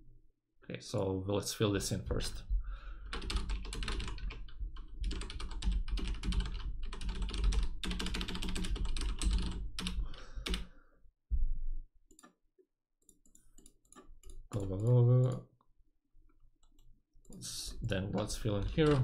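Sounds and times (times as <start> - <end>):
computer keyboard typing: 3.1 - 10.7, 13.1 - 15.4, 16.6 - 19.0.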